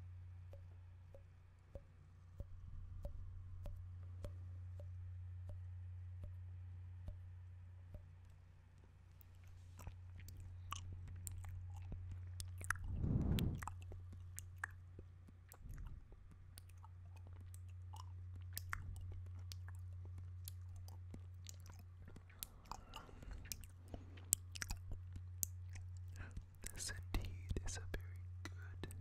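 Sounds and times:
lip smacks: 0.5s - 5.6s, 7.9s - 29.0s
tongue clicks: 0.5s - 6.4s, 7.0s - 7.2s, 7.9s - 8.4s, 9.2s - 29.0s
mouth sucking sounds: 9.4s - 14.8s, 15.5s - 19.7s.

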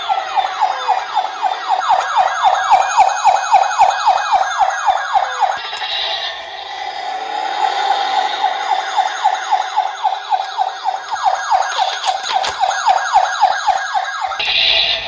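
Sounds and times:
toy electronic siren wailing: 0.0s - 15.0s
toy handling clicks: 11.0s - 12.8s.

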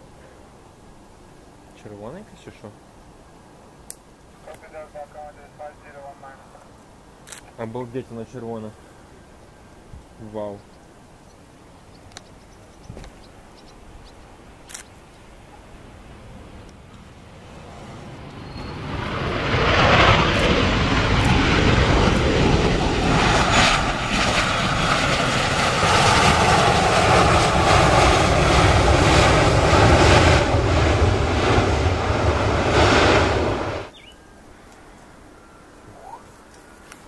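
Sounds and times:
jet engines at high power: 15.7s - 34.0s.

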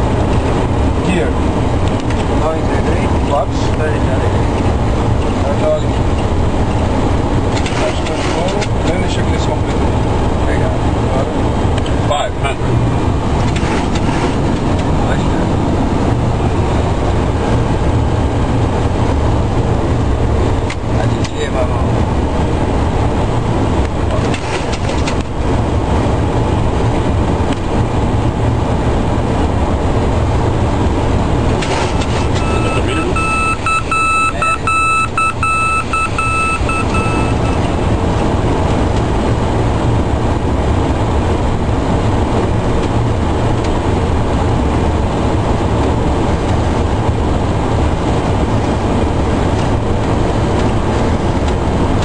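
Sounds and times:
jet engine noise: 0.0s - 52.0s
pulsing beeping tone: 32.2s - 37.8s.

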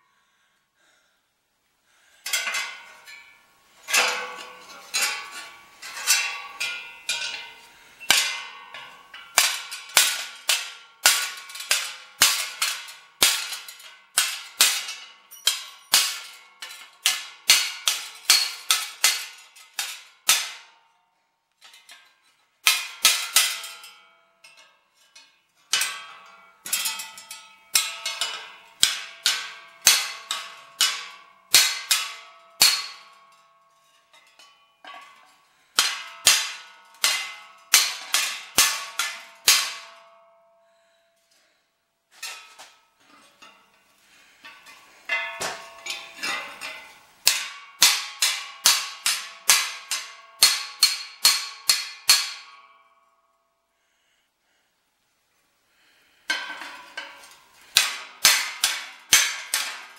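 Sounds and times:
mallet striking sheet metal: 3.9s - 20.6s, 25.8s - 33.3s, 35.8s - 40.2s, 44.4s - 52.7s, 56.3s - 59.9s.

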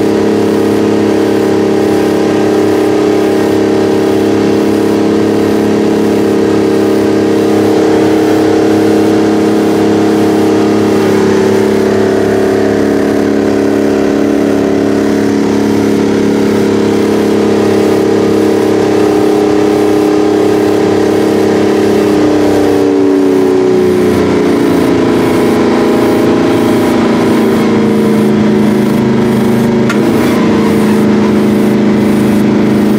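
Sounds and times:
diesel tractor engine running: 0.0s - 32.9s.

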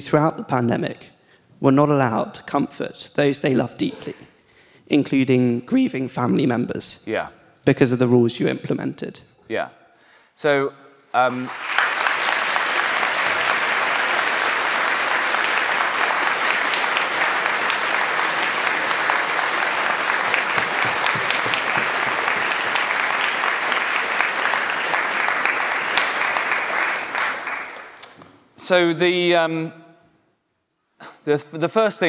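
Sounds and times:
crowd applauding: 11.3s - 28.2s.

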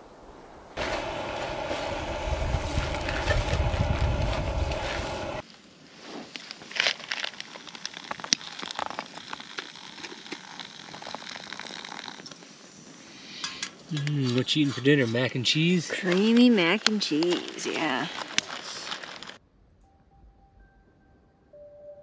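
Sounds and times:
campfire crackling and popping: 0.8s - 5.4s, 6.5s - 12.7s, 16.0s - 19.4s
loud rushing noise with rumble: 0.8s - 5.4s.

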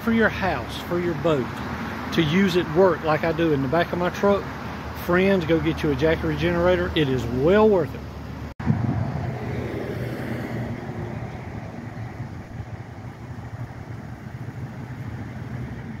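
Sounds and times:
road traffic rushing by: 0.0s - 16.0s
wind on microphone: 8.6s - 16.0s.

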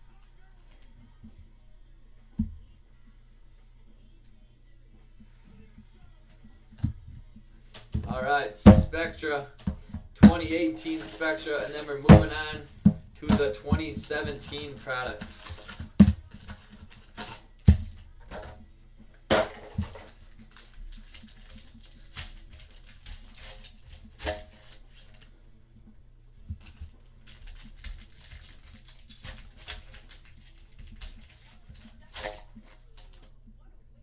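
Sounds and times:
cards clicking and tapping: 9.6s - 18.5s, 26.5s - 33.3s
wrapper tearing and crinkling: 10.4s - 12.7s, 20.0s - 25.3s, 26.6s - 33.2s.

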